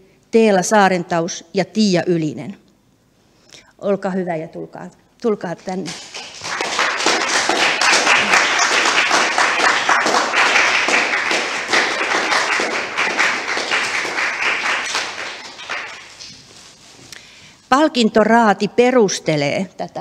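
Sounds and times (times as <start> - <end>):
audience applauding: 5.8 - 16.4.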